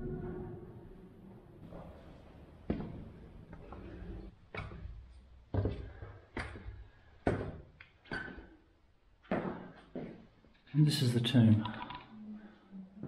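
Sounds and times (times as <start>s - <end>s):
footsteps on stone stairs: 2.7s - 8.6s, 9.2s - 10.2s.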